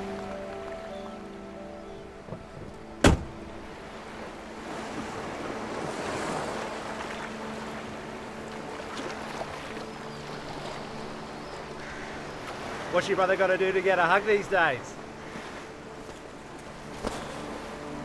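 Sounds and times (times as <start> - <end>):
wind: 0.0 - 18.0
car door slamming: 2.4 - 3.5.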